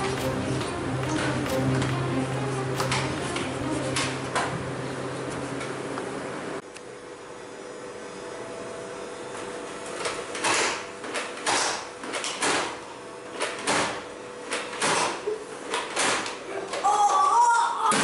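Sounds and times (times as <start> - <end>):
faint steady hum: 0.0 - 9.3.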